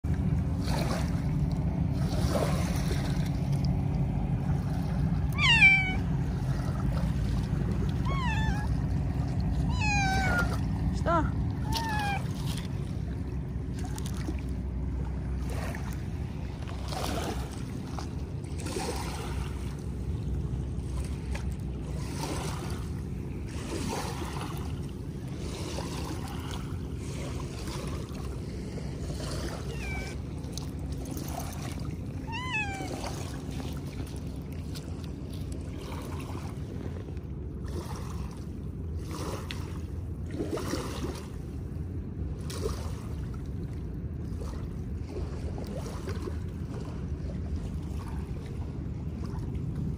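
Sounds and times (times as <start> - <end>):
steady low hum: 0.0 - 49.9
cat meowing: 5.3 - 6.1, 7.9 - 8.8, 9.6 - 10.7, 11.6 - 12.4, 29.6 - 30.2, 32.2 - 33.3
small waves on pebble shore: 15.4 - 19.7.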